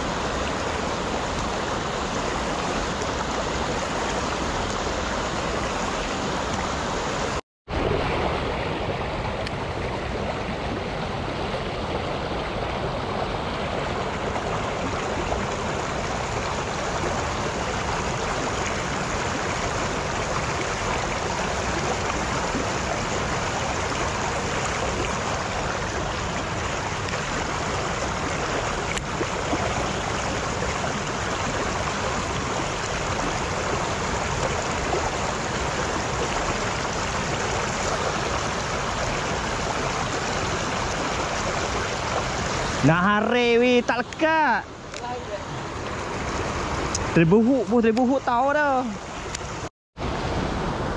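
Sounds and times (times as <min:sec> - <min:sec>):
river rushing over rocks: 0:00.0 - 0:50.9.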